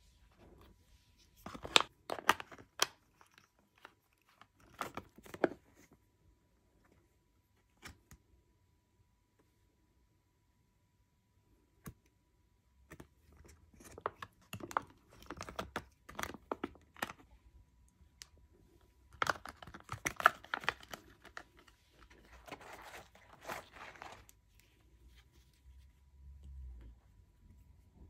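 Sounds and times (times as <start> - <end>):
soft plastic rustle: 18.4 - 28.0
plastic pouches crinkling: 19.1 - 24.4.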